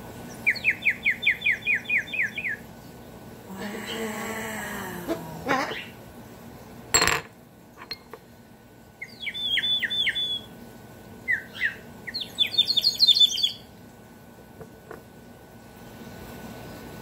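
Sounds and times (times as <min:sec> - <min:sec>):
warbling water bird whistle: 0:00.4 - 0:02.6, 0:09.0 - 0:10.6, 0:11.2 - 0:13.7.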